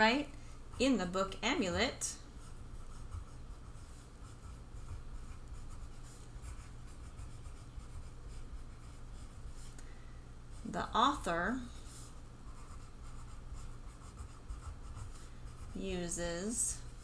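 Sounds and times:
steady low hum: 0.0s - 17.0s
pencil scratching on paper: 2.4s - 9.5s, 10.5s - 17.0s.

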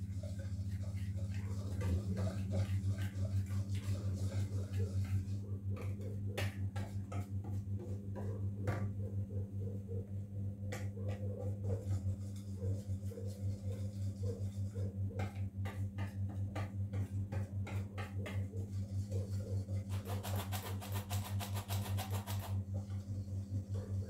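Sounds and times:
steady low hum: 0.0s - 21.7s, 22.4s - 24.0s
whisk ticking against bowl: 10.7s - 22.5s.

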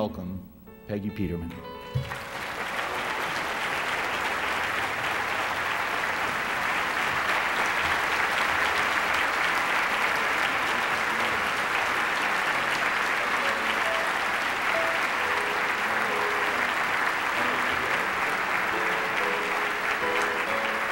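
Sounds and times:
large audience applauding: 1.9s - 20.9s.

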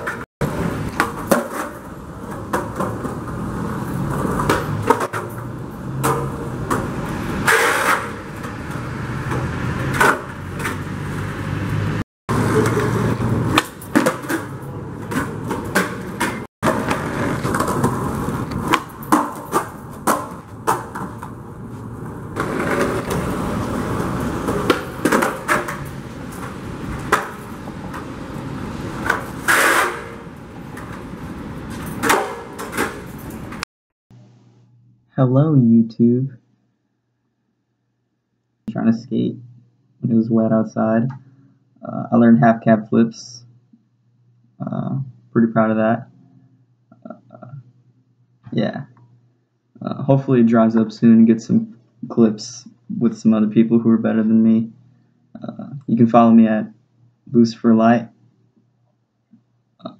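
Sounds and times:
skateboard clacks: 0.0s - 5.3s, 12.3s - 21.4s, 22.4s - 28.2s, 28.9s - 31.0s
skateboard wheels rolling on concrete: 0.0s - 33.6s
skateboard landing slaps: 12.4s - 21.4s, 24.0s - 25.8s, 29.0s - 30.2s
skateboard tail pops: 29.0s - 30.2s.

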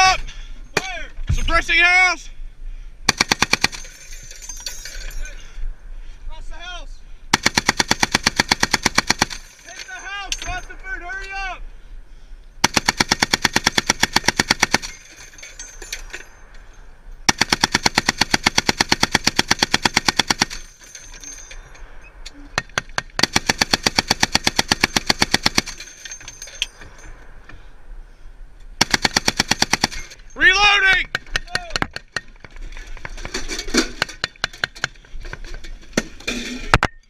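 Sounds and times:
heavy machine gun firing: 3.1s - 3.9s, 7.3s - 9.6s, 12.6s - 15.1s, 17.3s - 20.8s, 22.7s - 26.0s, 28.8s - 30.2s.

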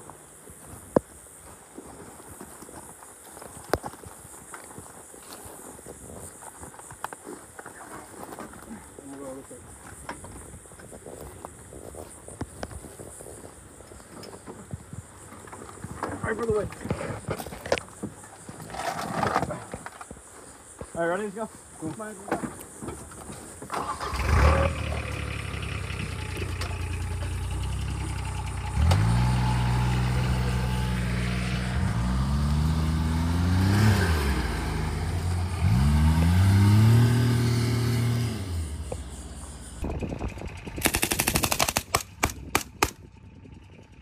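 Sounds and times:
utility vehicle engine accelerating: 23.8s - 41.3s
machine-gun burst: 40.7s - 43.0s.

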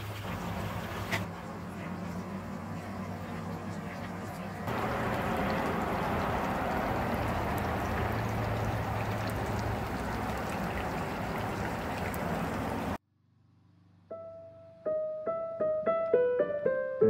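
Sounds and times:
outdoor rushing noise: 0.2s - 13.0s.

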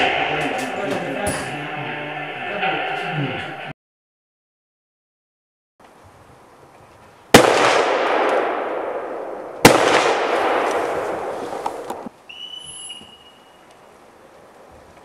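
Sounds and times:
high steady tone: 0.0s - 3.7s
rifle shots with long echo: 7.3s - 12.1s.

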